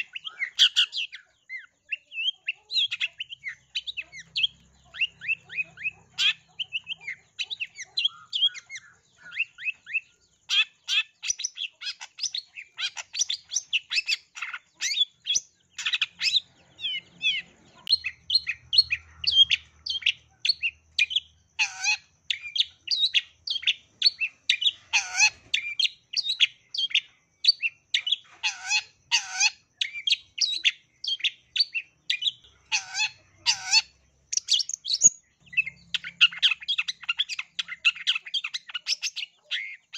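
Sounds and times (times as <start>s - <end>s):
shrike chattering song: 0.0s - 39.9s.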